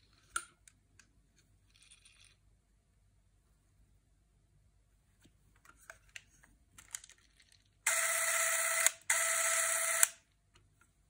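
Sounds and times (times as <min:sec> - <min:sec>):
camera motor whirring: 0:07.9 - 0:10.2.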